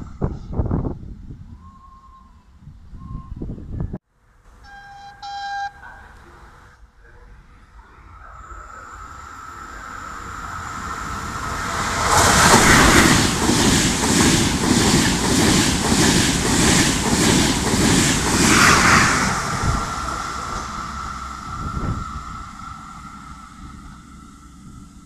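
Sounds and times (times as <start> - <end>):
train passing: 4.7 - 25.0
rhythmic beat of wheels on rails: 9.4 - 25.0.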